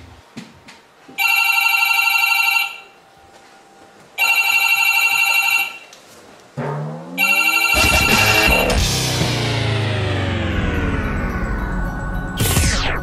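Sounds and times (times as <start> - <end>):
desk telephone ringing: 1.2 - 2.9, 4.2 - 5.8, 7.2 - 8.7
short rising sound: 6.6 - 13.0.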